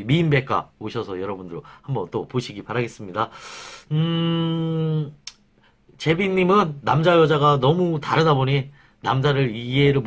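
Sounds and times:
man humming: 0:03.8 - 0:05.4.

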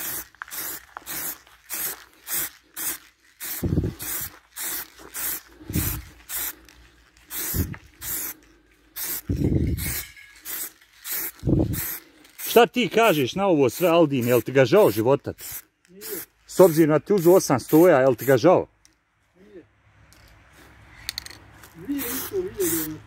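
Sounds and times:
spray can hissing bursts: 0:00.0 - 0:18.4, 0:21.8 - 0:23.0.

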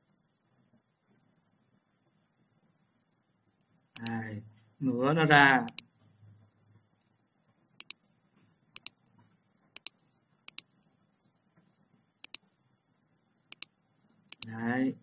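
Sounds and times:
faint low hum: 0:00.0 - 0:15.0
computer mouse clicking: 0:04.0 - 0:04.2, 0:05.7 - 0:05.9, 0:07.8 - 0:08.2, 0:08.8 - 0:09.1, 0:09.8 - 0:10.7, 0:12.2 - 0:12.5, 0:13.5 - 0:14.6.

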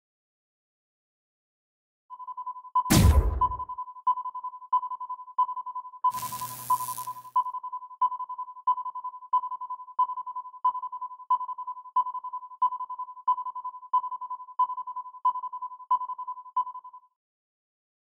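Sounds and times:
pulsing high electronic note: 0:06.1 - 0:07.3.

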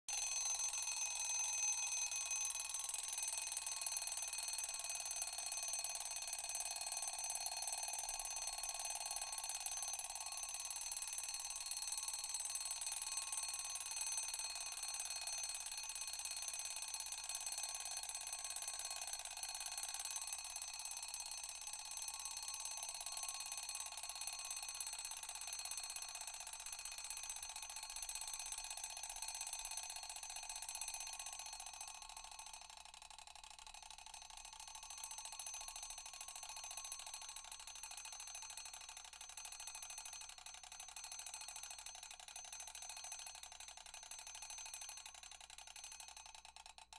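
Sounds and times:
alarm clock bell ringing: 0:00.1 - 0:07.6, 0:08.2 - 0:26.4.

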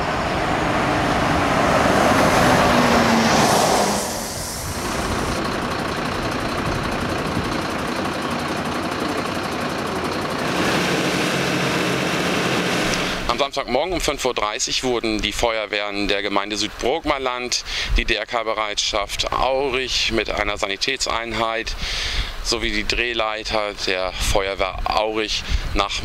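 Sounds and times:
fire engine driving past: 0:00.0 - 0:13.6
fire engines idling: 0:00.0 - 0:19.0, 0:21.2 - 0:22.5.

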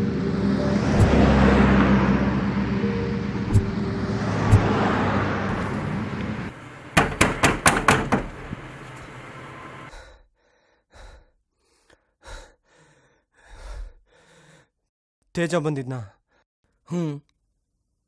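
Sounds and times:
road traffic passing: 0:00.0 - 0:09.9
vehicle engine humming: 0:00.0 - 0:09.9
knocking on wooden door: 0:07.0 - 0:08.6.

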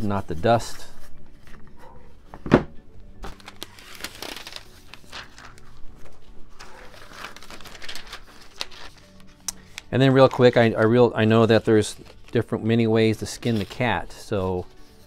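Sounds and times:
knock on workbench: 0:02.4 - 0:02.7
plastic film crinkling: 0:03.2 - 0:15.0.

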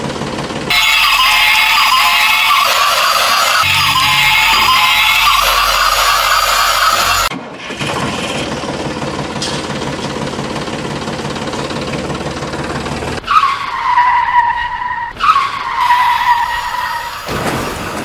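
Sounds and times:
toy steam locomotive whistle: 0:00.7 - 0:07.3.

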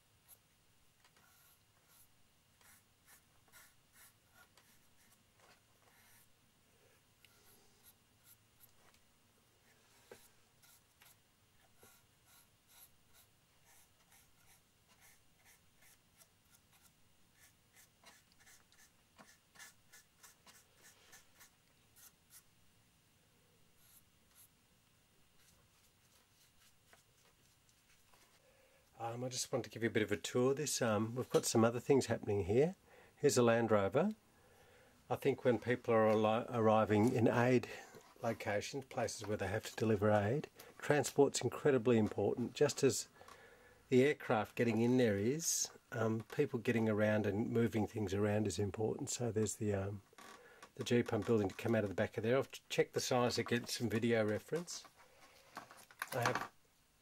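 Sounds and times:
paintbrush scratching: 0:01.2 - 0:05.2, 0:09.7 - 0:11.2, 0:11.8 - 0:22.5.

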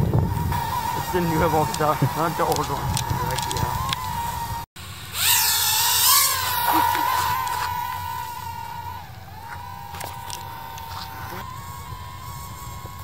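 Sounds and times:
drone propellers whining: 0:00.0 - 0:13.0.

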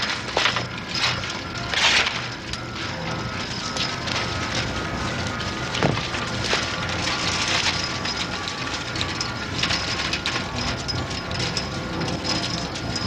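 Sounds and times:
chain-link fence rattling: 0:05.8 - 0:13.0.

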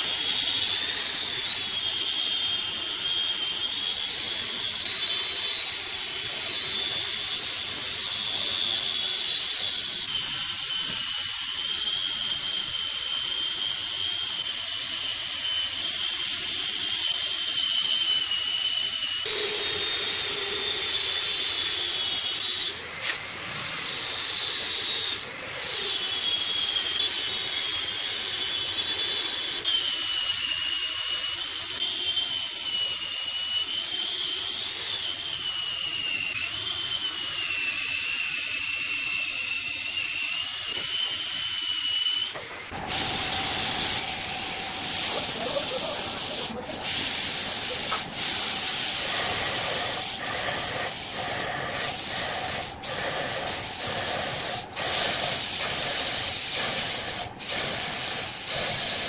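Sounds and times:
wood lathe cutting whine: 0:00.0 - 0:59.0.

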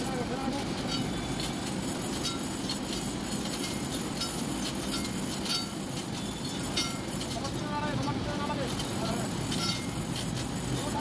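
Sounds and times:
hand chain clinking and rattling: 0:00.0 - 0:11.0
industrial background noise: 0:00.0 - 0:11.0.

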